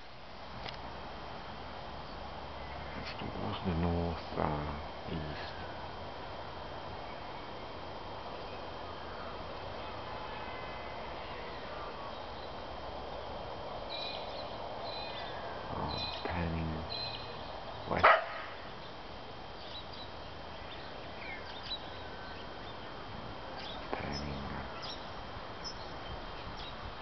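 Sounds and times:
background hiss: 0:00.0 - 0:27.0
dog barking: 0:18.0 - 0:18.6.

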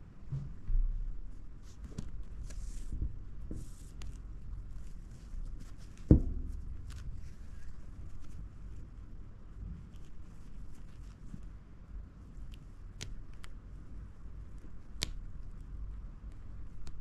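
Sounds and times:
cloth rustling: 0:01.4 - 0:11.6
dull knock: 0:06.1 - 0:06.8.

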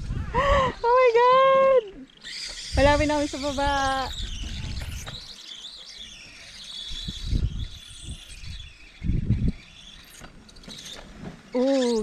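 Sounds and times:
wind buffeting microphone: 0:00.0 - 0:02.0, 0:02.7 - 0:05.4, 0:06.9 - 0:10.0.

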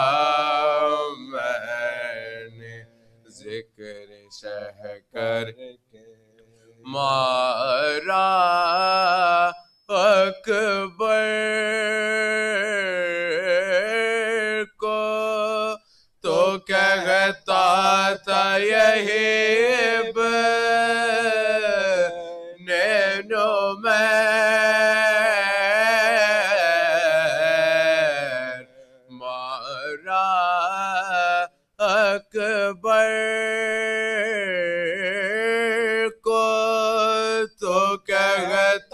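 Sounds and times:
men chanting unaccompanied: 0:37.0 - 0:38.9.

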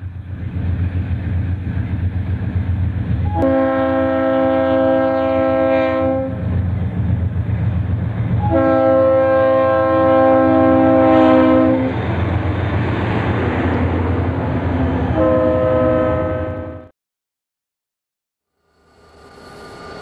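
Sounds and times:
train rumbling: 0:00.0 - 0:16.9, 0:18.6 - 0:20.0
locomotive air horn: 0:03.2 - 0:06.4, 0:08.4 - 0:12.0, 0:15.1 - 0:16.9.

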